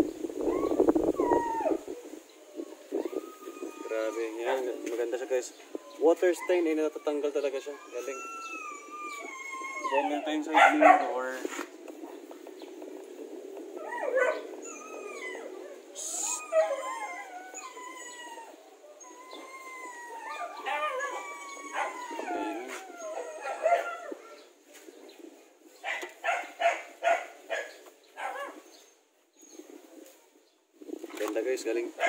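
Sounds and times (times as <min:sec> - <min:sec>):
animal whining and howling: 0:00.0 - 0:11.3, 0:12.1 - 0:25.1
animal yelping: 0:02.9 - 0:11.0, 0:13.8 - 0:24.2.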